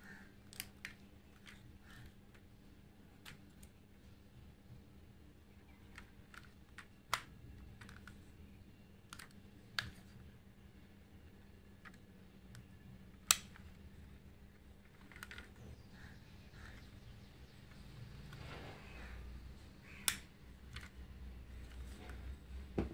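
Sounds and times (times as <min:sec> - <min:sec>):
toy car parts clicking: 0:14.9 - 0:15.6.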